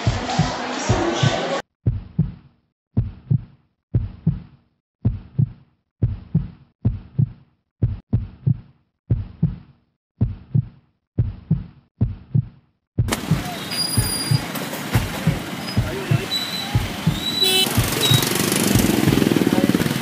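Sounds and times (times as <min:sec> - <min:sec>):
heartbeat double thump: 0:01.8 - 0:02.4, 0:03.0 - 0:04.4, 0:05.0 - 0:09.6, 0:10.2 - 0:19.4.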